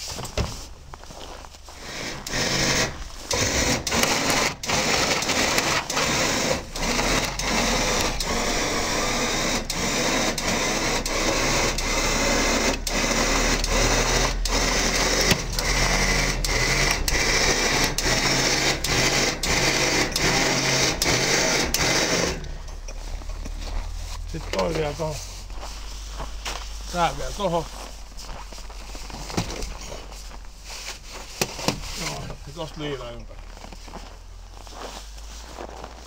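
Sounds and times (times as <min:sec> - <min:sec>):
winch motor pulsing: 0:01.8 - 0:29.9.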